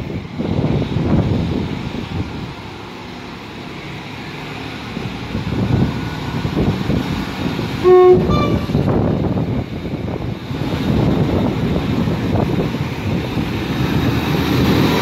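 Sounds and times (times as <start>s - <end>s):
train rumble: 0.0s - 15.0s
two-tone train horn: 7.8s - 9.0s.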